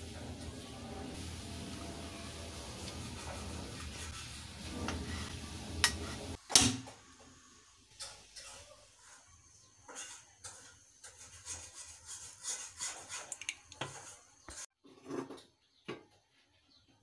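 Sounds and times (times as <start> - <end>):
oil crackling in iron pan: 12.9 - 14.6.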